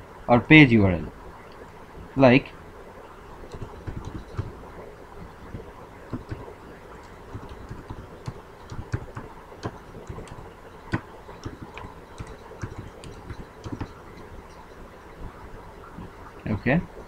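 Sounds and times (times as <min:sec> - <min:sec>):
low background hiss: 0:00.0 - 0:17.0
keyboard typing: 0:03.5 - 0:04.6, 0:05.5 - 0:14.3.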